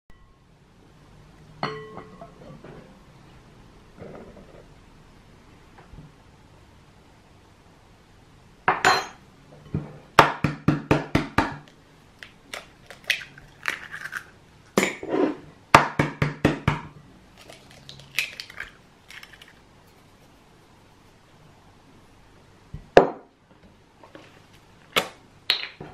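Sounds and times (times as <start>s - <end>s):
spoon clinking on glass bowl: 1.6s - 2.3s
eggs cracking on bowl: 11.6s - 15.0s, 17.3s - 19.6s.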